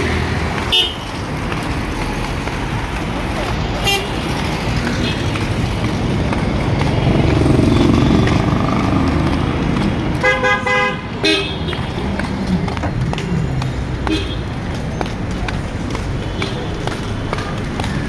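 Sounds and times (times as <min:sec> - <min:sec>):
street traffic: 0:00.0 - 0:18.0
car horn honking: 0:00.7 - 0:01.1, 0:03.8 - 0:04.2, 0:10.2 - 0:11.8, 0:14.0 - 0:14.5.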